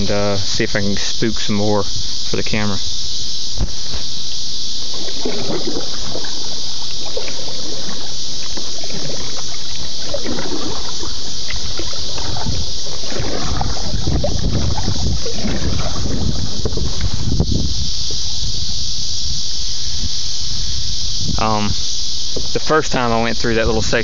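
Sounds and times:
microphone bumping and rubbing: 0:00.0 - 0:22.7
steady high hiss: 0:00.0 - 0:24.0
paddle splashes: 0:04.8 - 0:17.2.

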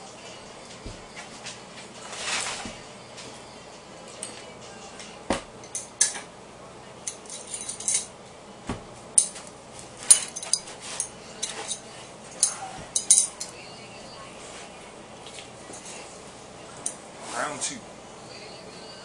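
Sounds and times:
heavier knocks: 0:05.3 - 0:05.6
metal knives clinking: 0:05.6 - 0:06.3, 0:07.0 - 0:08.1, 0:09.2 - 0:13.6.

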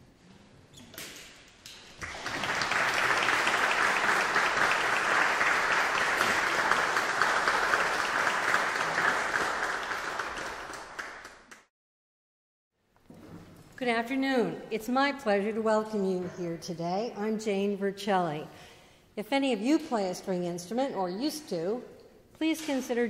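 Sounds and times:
audience applauding: 0:02.0 - 0:11.7.

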